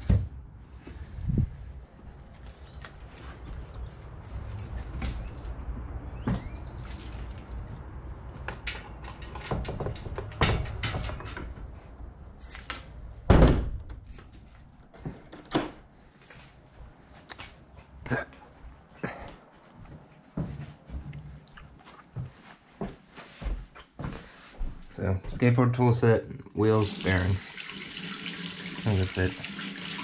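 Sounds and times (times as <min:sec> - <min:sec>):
small metal objects jangling: 0:02.2 - 0:05.6, 0:06.8 - 0:08.4, 0:12.4 - 0:13.3, 0:14.0 - 0:14.8, 0:16.1 - 0:17.7
loud thump: 0:13.3 - 0:13.8.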